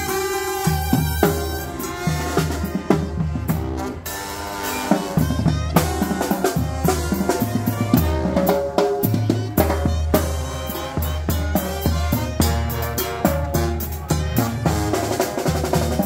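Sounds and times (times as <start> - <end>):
brass band playing: 0.0 - 16.0
drums beating driving rhythm: 0.0 - 16.0.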